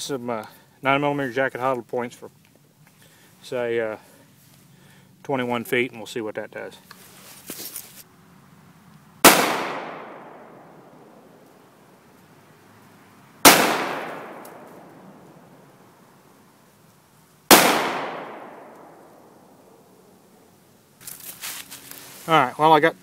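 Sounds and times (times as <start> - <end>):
pistol shots hitting steel target: 9.2 - 10.7, 13.4 - 14.9, 17.5 - 19.2
gunshot echo: 9.2 - 10.9, 13.4 - 15.0, 17.5 - 19.4.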